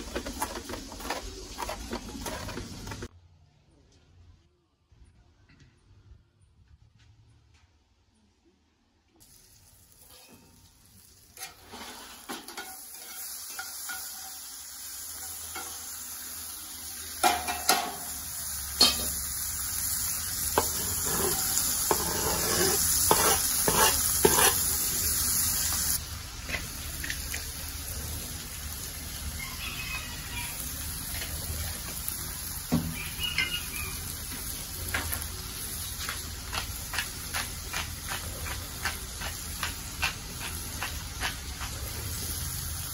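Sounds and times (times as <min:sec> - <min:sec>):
utensil scraping and knocking pan: 0:00.0 - 0:03.1, 0:20.6 - 0:24.7
vegetables sizzling in a skillet: 0:09.2 - 0:42.9.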